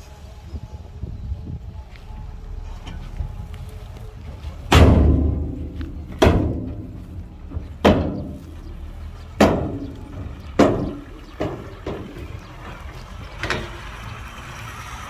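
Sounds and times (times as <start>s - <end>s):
engine running: 0.0s - 15.0s
heavy machinery thuds: 4.6s - 12.8s.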